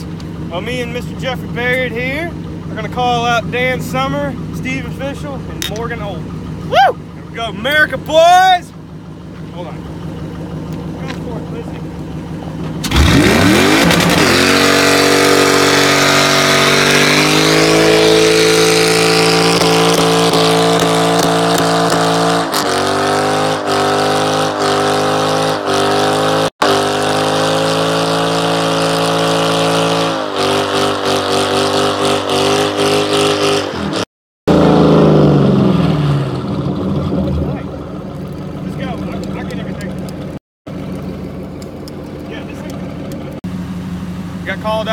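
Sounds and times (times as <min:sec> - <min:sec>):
car engine revving hard: 0:12.8 - 0:37.8.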